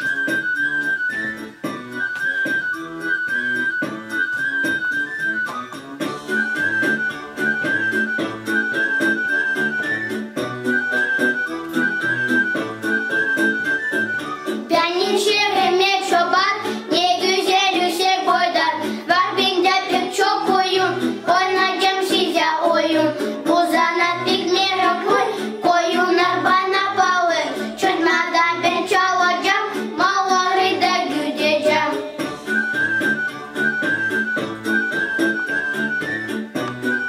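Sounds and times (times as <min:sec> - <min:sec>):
high woodwind-like note: 0:00.0 - 0:14.7
instrumental backing music: 0:00.0 - 0:37.0
children singing: 0:14.2 - 0:32.3.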